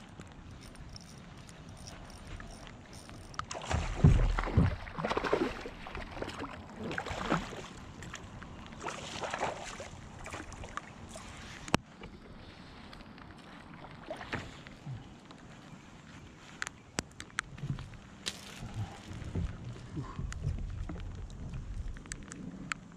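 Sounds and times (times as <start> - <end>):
fish thrashing and splashing: 0.3 - 11.4.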